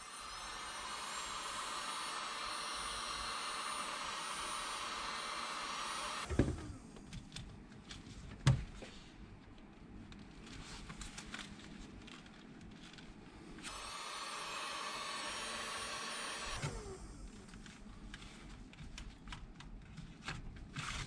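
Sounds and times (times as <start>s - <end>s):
heat gun blowing: 0.0s - 6.8s, 13.6s - 17.2s.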